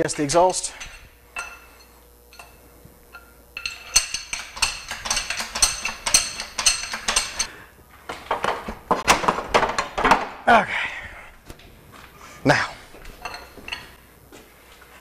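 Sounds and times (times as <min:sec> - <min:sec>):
hydraulic jack pumping clanks: 0:03.2 - 0:07.5.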